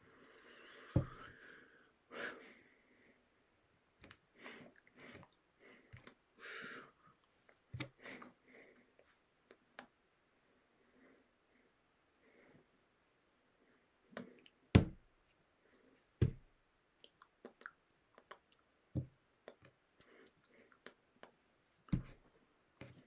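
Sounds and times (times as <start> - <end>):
hands thumping against body: 14.8 - 15.0, 16.2 - 16.5, 21.9 - 22.2.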